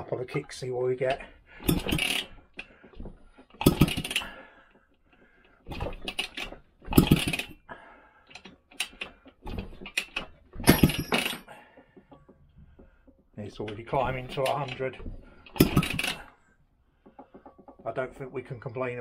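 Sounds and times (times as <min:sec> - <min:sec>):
scooter engine kickstart clatter: 0:01.2 - 0:12.3, 0:13.6 - 0:16.4.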